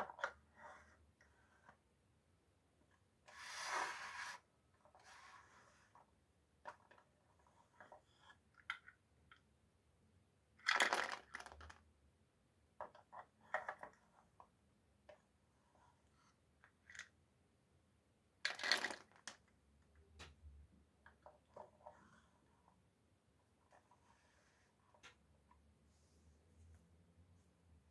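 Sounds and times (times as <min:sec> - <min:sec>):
wooden puzzle pieces clattering: 0:10.6 - 0:11.8, 0:18.4 - 0:19.4.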